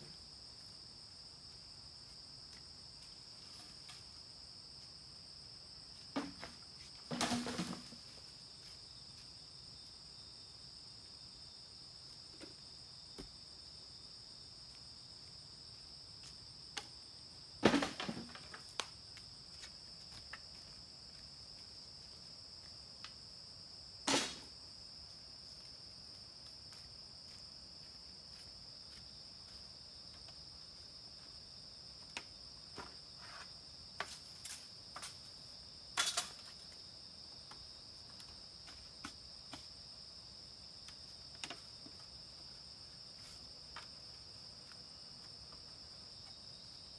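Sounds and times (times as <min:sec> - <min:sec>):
insects droning: 0:00.0 - 0:46.9
knocks and rustles: 0:06.1 - 0:08.2, 0:17.6 - 0:18.9.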